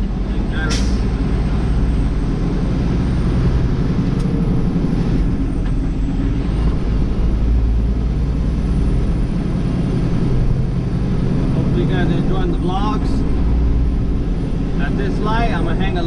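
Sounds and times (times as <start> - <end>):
road noise inside cab: 0.0 - 16.0
truck engine rumble: 0.0 - 16.0.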